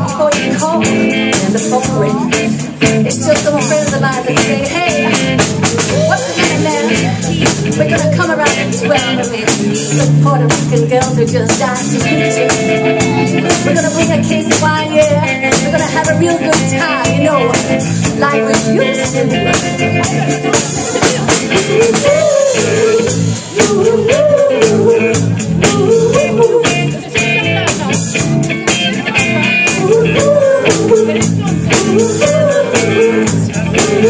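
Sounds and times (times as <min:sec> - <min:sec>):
drum kit steady beat: 0:00.0 - 0:34.0
electric guitars: 0:00.0 - 0:34.0.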